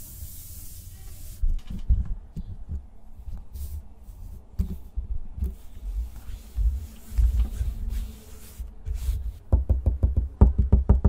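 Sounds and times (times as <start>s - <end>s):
steady hiss: 0.0s - 1.8s
hands brushing wooden desk: 3.2s - 9.5s.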